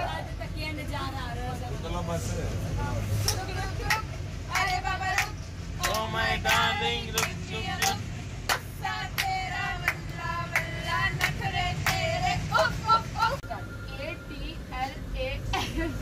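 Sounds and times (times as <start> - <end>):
women singing together: 0.0 - 0.5, 2.8 - 16.0
train carriage rumble: 0.0 - 16.0
clapping in time: 4.6 - 8.6.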